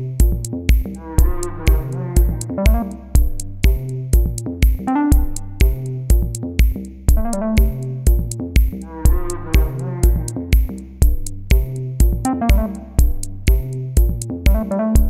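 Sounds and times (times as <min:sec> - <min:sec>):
drum machine beat: 0:00.0 - 0:15.0
synthesizer melody: 0:01.0 - 0:03.2, 0:04.9 - 0:05.8, 0:07.2 - 0:08.1, 0:08.9 - 0:10.4, 0:12.2 - 0:13.2.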